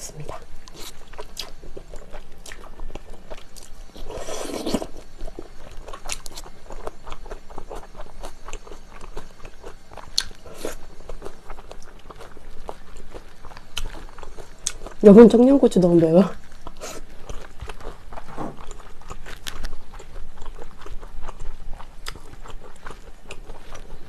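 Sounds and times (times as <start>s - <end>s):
wet chewing with mouth clicks: 0.2s - 15.3s, 16.3s - 24.0s
noodle slurp: 4.0s - 5.0s.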